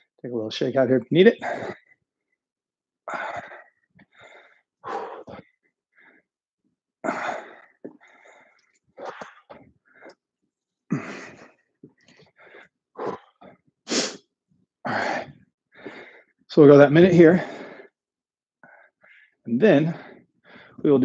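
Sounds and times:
man breathing hard: 3.1s - 6.3s, 7.0s - 10.2s, 10.9s - 14.2s, 14.8s - 16.4s, 17.4s - 18.0s, 18.6s - 20.8s.

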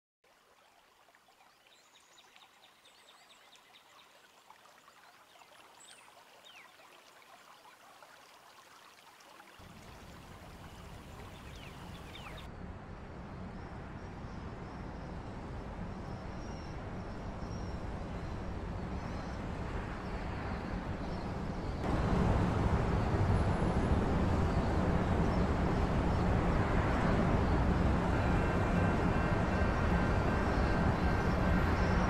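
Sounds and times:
flowing water rushing: 0.2s - 12.5s, 21.8s - 28.1s
bird chirps: 10.6s - 12.5s
low rumble: 21.8s - 32.0s.

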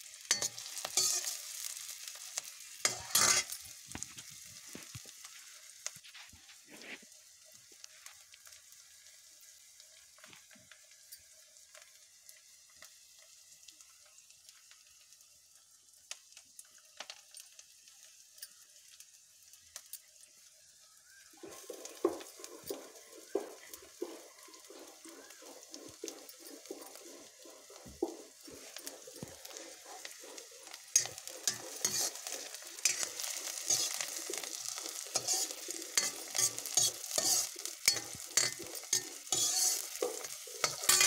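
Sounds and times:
ladle stirring and scraping pan: 0.0s - 5.4s, 21.4s - 41.0s
food sizzling with crackles: 0.0s - 41.0s.

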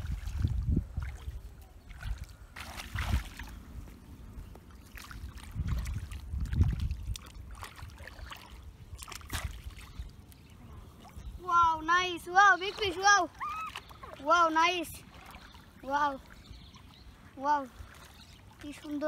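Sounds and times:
water sloshing and splashing: 0.0s - 19.0s.

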